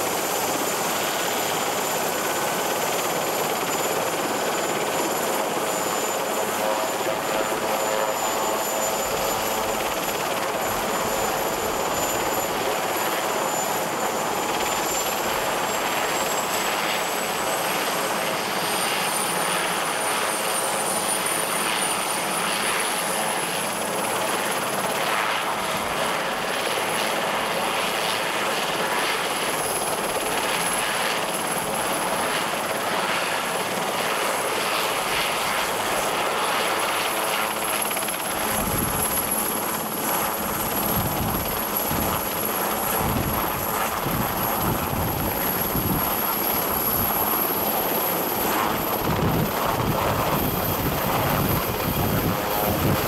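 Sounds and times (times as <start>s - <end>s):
high turbine whine: 28.6s - 53.0s.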